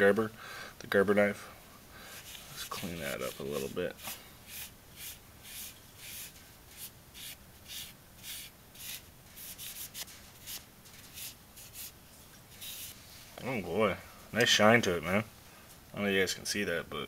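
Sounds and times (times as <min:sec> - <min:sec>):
cloth rubbing on knife blade: 0:02.1 - 0:13.4.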